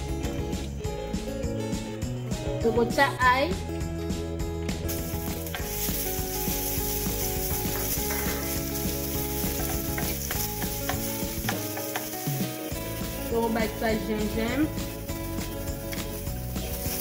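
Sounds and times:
garlic sizzling in oil: 4.8 - 17.0
wooden spoon stirring: 5.6 - 13.8.

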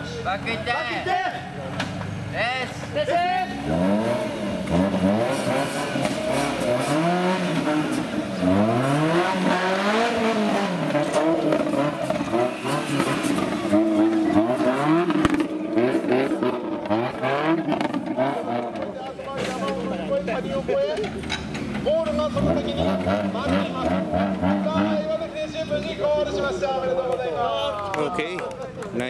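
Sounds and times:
engine revving: 3.4 - 20.3, 21.5 - 25.4.

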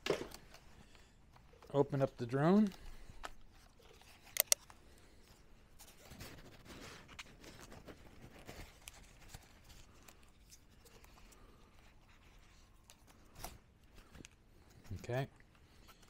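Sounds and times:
drone being handled clicks: 4.3 - 4.7.

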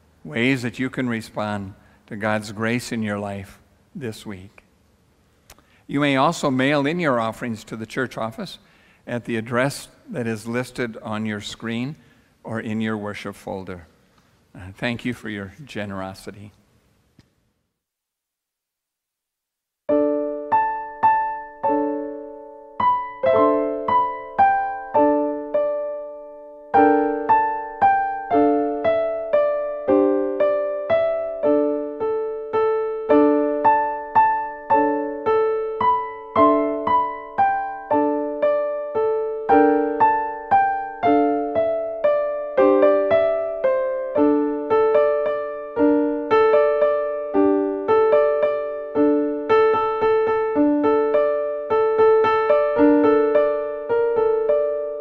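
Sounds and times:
solo piano: 19.9 - 55.0.

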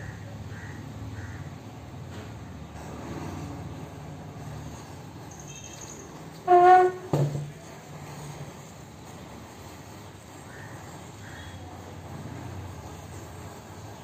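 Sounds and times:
loud horn-like tone: 6.4 - 7.2.

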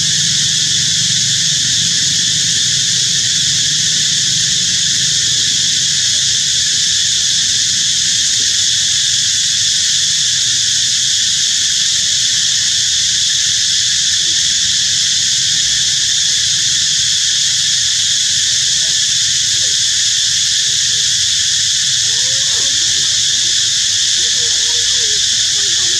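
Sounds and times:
high-pitched insect chorus: 0.0 - 25.9.

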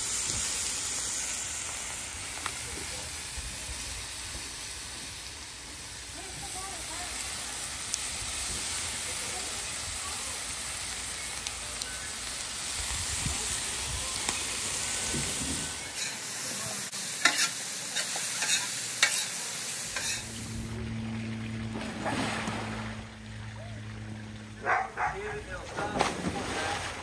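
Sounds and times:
vegetables sizzling on a griddle: 0.0 - 20.7.

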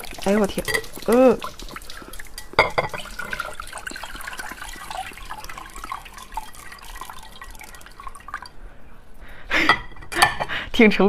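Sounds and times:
water dripping into bowl: 0.0 - 8.6.

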